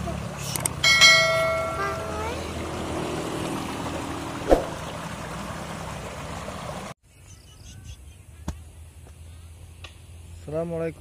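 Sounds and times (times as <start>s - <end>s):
water rushing down a stone channel: 3.2s - 6.9s
sharp thump: 4.5s - 4.8s.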